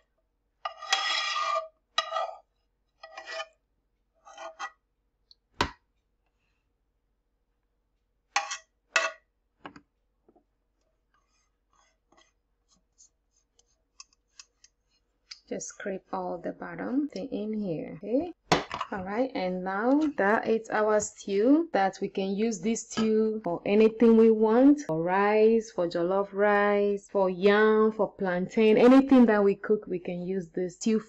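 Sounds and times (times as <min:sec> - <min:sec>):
metal spoon scraping pot: 0:00.6 - 0:03.6, 0:04.2 - 0:04.8, 0:08.4 - 0:09.3.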